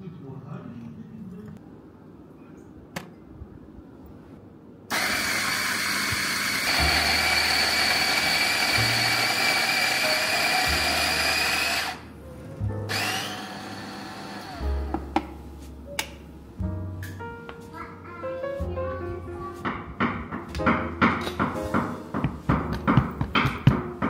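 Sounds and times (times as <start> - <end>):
coffee grinder whining: 4.9 - 12.1, 12.9 - 14.8.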